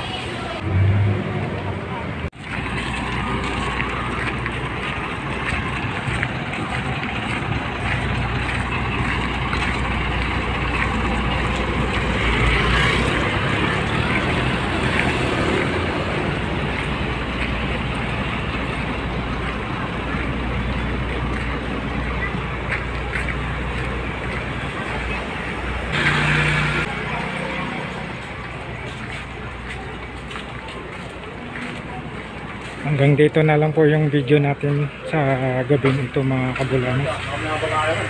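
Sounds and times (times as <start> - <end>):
motor scooter passing: 0.0 - 22.7, 23.3 - 29.9
passing cars and motorbikes: 0.0 - 38.0.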